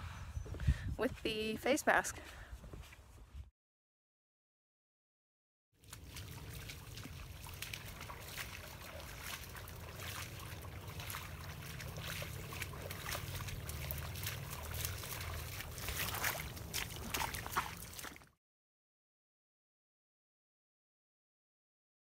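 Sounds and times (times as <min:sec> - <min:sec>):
footsteps splashing through water: 0:05.8 - 0:18.4.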